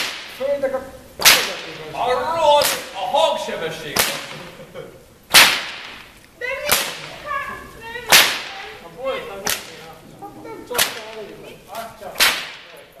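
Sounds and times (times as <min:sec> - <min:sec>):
whip cracks: 0:00.0 - 0:00.5, 0:01.2 - 0:01.9, 0:02.6 - 0:03.0, 0:03.9 - 0:04.4, 0:05.3 - 0:07.2, 0:08.1 - 0:08.6, 0:09.4 - 0:09.8, 0:10.7 - 0:11.3, 0:12.2 - 0:12.9.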